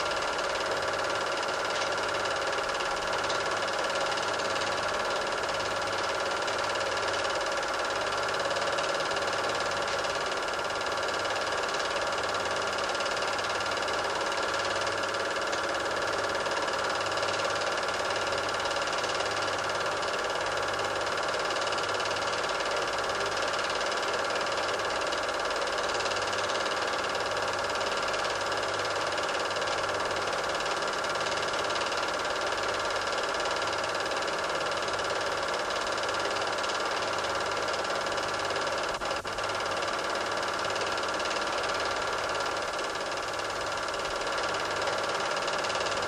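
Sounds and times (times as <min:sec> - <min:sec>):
film projector whirring: 0:00.0 - 0:46.0.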